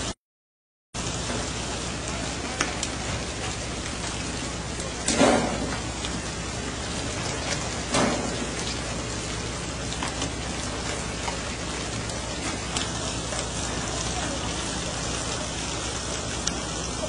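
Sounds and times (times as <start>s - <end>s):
sea water rushing along hull: 1.0s - 17.0s
water slaps and splashes: 1.0s - 17.0s.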